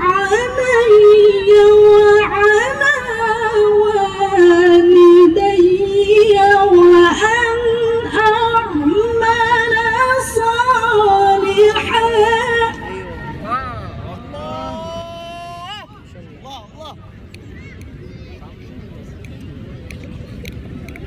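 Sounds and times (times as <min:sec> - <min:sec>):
woman reciting melodically: 0:00.0 - 0:13.3.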